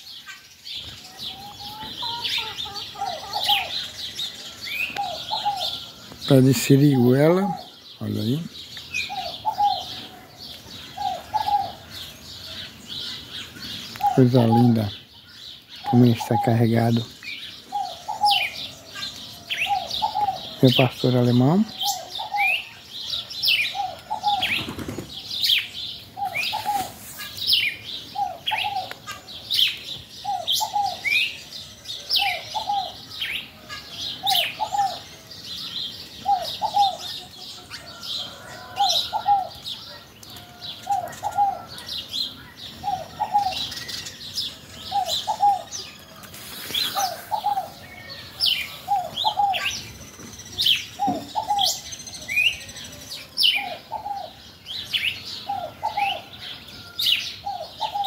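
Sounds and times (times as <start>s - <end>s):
birds chirping and whistling: 0.0s - 58.0s
low two-part cooing call: 1.2s - 6.7s, 9.0s - 12.5s, 17.6s - 21.0s, 21.6s - 24.6s, 26.0s - 27.0s, 28.1s - 29.6s, 30.2s - 31.4s, 32.0s - 35.2s, 36.1s - 46.2s, 46.8s - 50.0s, 50.7s - 54.4s, 55.0s - 58.0s.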